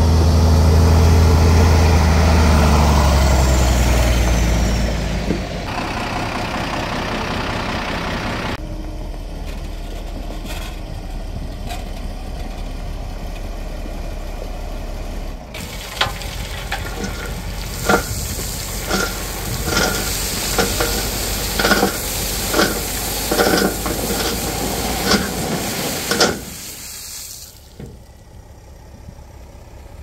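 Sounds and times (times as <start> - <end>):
truck diesel engine running: 0.0 - 30.0
gravel pouring from tipper: 15.6 - 27.8.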